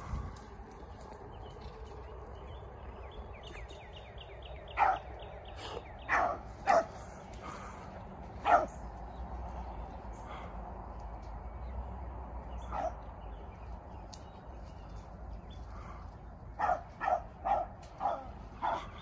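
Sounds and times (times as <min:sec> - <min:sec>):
puppy barking: 0:04.8 - 0:05.1, 0:06.1 - 0:07.0, 0:08.4 - 0:08.8, 0:12.6 - 0:13.0, 0:16.6 - 0:19.0.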